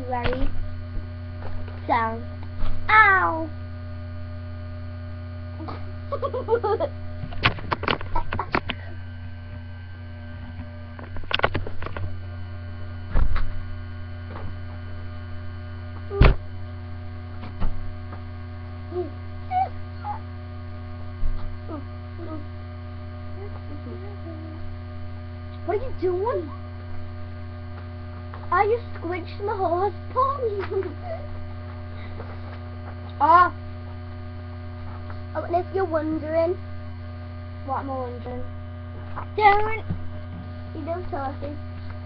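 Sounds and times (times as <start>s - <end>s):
electrical mains hum: 0.0s - 42.0s.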